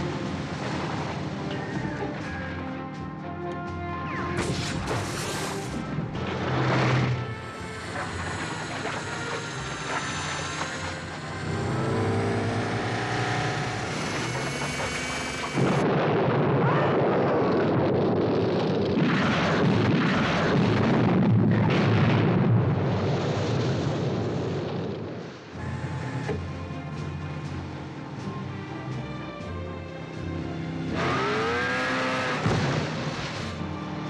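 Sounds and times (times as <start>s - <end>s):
music: 0.0s - 15.9s, 25.5s - 34.0s
explosions and rumbling: 14.2s - 25.5s
loud explosion blast: 15.6s - 25.1s.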